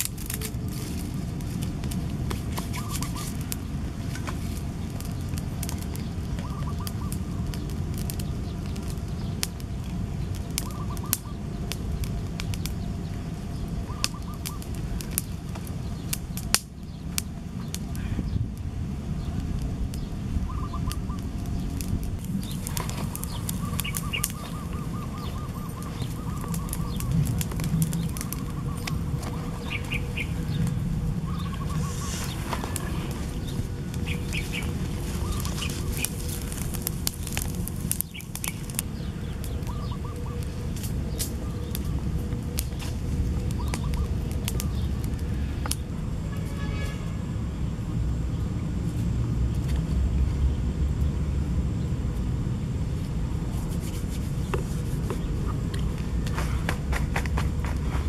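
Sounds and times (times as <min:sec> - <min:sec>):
sharp clicks and crackles: 0:00.0 - 0:13.2, 0:14.0 - 0:18.0, 0:20.7 - 0:45.9
steady low rumble: 0:00.0 - 0:46.4, 0:47.0 - 0:58.0
birds chirping trills: 0:00.2 - 0:18.5, 0:19.2 - 0:45.9.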